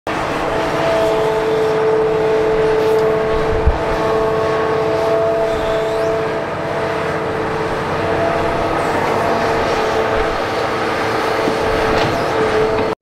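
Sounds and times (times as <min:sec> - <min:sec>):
high steady whine: 0:00.1 - 0:12.7
excavator diesel engine running: 0:00.1 - 0:13.0.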